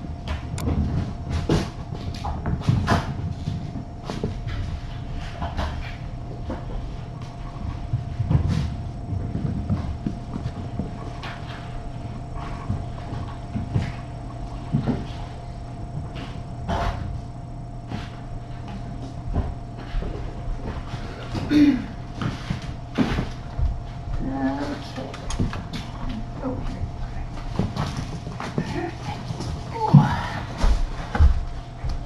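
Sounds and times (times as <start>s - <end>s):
kittens scampering and scuffling: 0.0s - 32.0s
steady hum: 0.0s - 32.0s.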